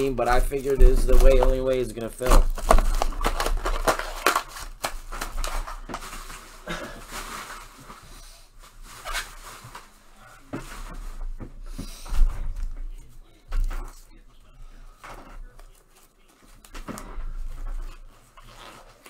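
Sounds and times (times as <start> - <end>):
packaging rustling: 0.0 - 10.0.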